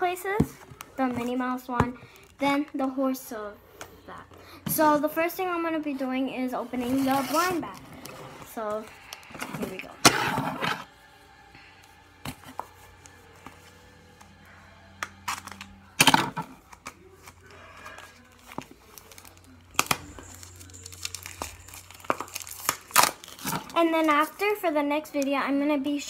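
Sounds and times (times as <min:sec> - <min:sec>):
packaging tearing and crinkling: 0:17.9 - 0:23.8.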